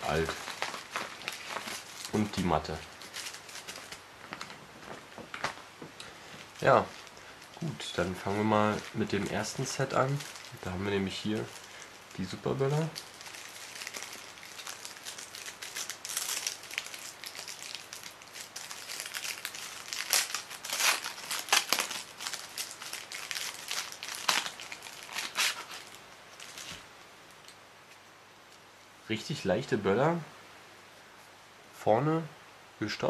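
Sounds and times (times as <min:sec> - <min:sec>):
paper wrapping crinkling: 0:00.0 - 0:05.7, 0:06.3 - 0:26.9.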